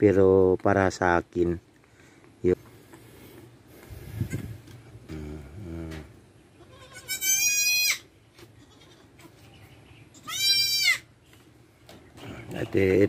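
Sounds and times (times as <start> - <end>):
faint low call: 4.2 - 6.2
goat kid bleating: 6.5 - 9.4, 10.1 - 11.1.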